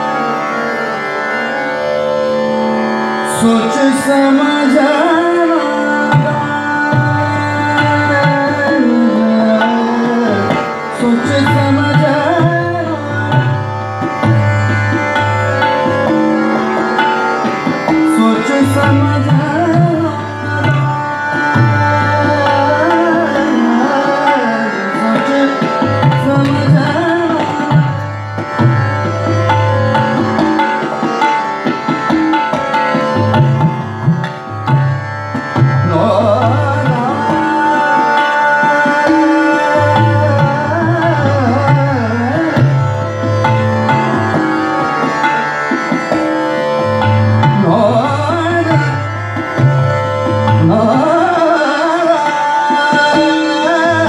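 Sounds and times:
harmonium: 0.0 - 54.0
tanpura drone: 0.0 - 54.0
man singing: 3.2 - 13.8, 17.9 - 28.0, 35.6 - 42.9, 47.4 - 49.8, 50.4 - 54.0.

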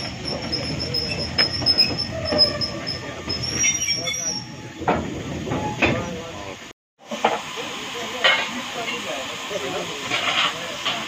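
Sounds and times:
locomotive wheels squealing on rails: 0.0 - 6.4.

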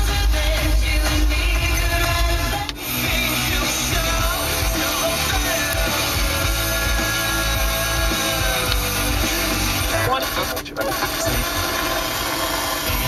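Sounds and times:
rock song on car radio: 0.0 - 13.0.

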